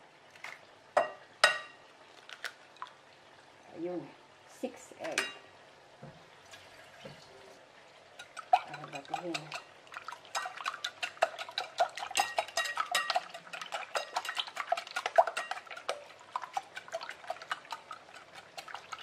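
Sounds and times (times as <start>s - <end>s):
whisk clinking against glass bowl: 8.2s - 9.7s, 10.3s - 19.0s.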